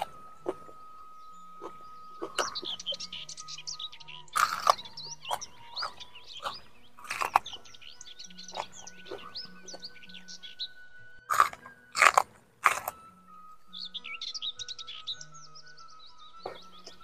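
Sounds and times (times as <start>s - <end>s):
person crunching raw vegetables: 0.0s - 0.9s, 1.6s - 3.0s, 4.3s - 7.7s, 8.4s - 9.8s, 11.3s - 13.1s
birds chirping: 0.0s - 17.0s
faint background music: 0.0s - 17.0s.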